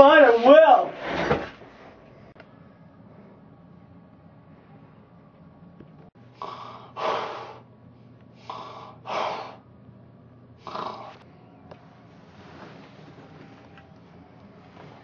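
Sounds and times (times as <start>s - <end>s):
person breathing heavily: 6.3s - 7.7s, 8.3s - 9.6s.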